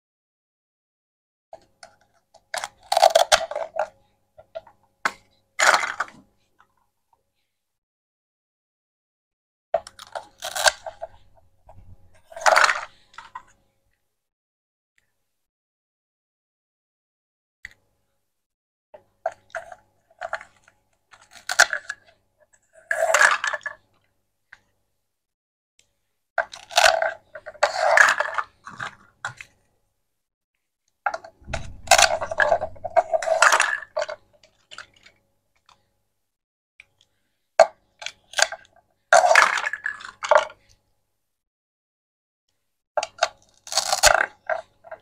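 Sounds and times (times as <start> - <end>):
plastic toy knife cutting toy food: 2.4 - 3.9, 9.8 - 12.9, 19.3 - 22.1, 26.4 - 29.5, 37.6 - 40.5, 43.0 - 45.0.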